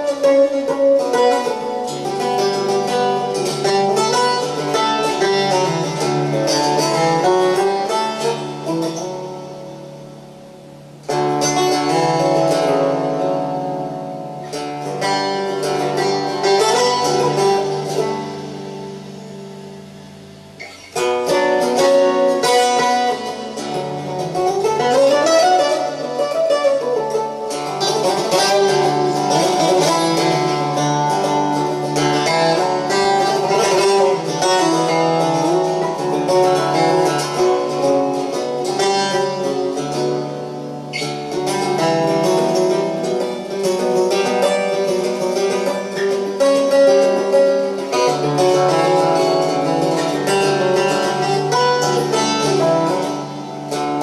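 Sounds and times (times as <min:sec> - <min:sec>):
plucked lute folk melody: 0:00.0 - 0:54.0.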